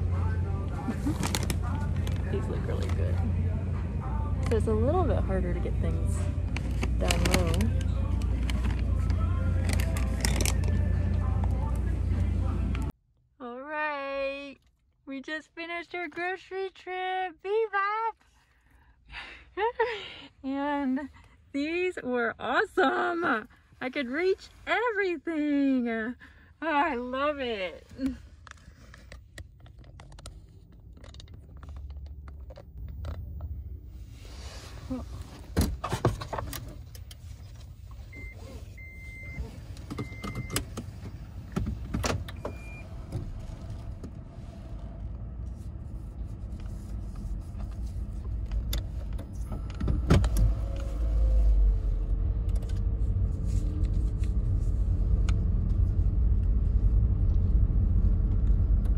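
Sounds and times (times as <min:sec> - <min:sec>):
car engine rumbling: 0:00.0 - 0:58.9
short electronic beeps: 0:38.1 - 0:40.6.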